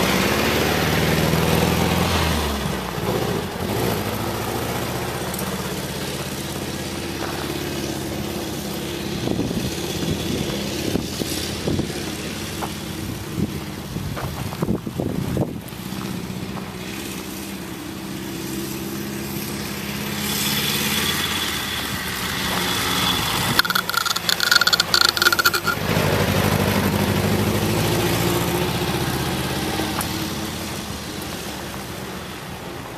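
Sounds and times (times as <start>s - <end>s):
crackling noise: 23.4s - 25.8s.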